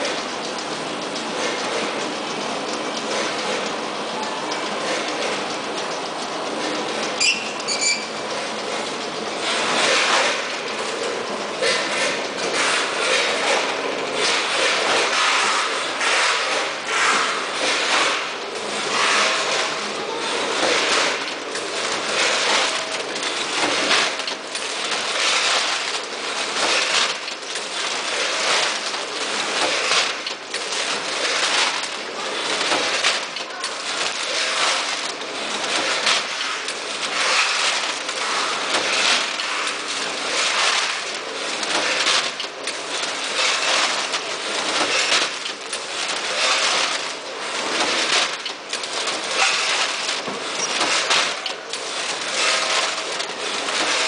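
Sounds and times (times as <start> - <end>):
packing machine clattering: 0.0 - 54.0.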